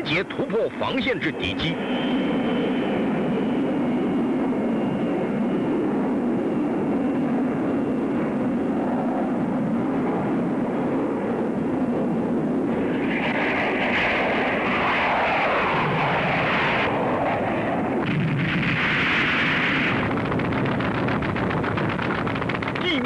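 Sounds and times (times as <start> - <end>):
jet aircraft flying overhead: 0.0 - 23.0.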